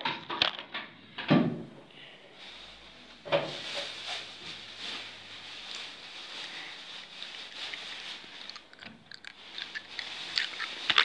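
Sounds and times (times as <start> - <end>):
soft rubbing: 2.4 - 11.0.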